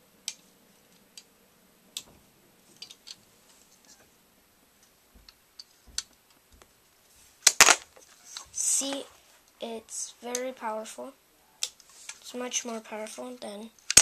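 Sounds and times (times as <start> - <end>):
plastic bricks clicking: 2.8 - 3.2, 13.8 - 14.0.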